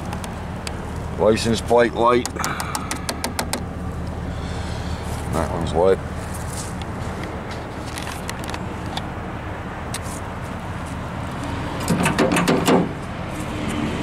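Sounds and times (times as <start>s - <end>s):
pickup engine idling: 0.0s - 13.2s
footsteps on gravel: 6.2s - 8.6s.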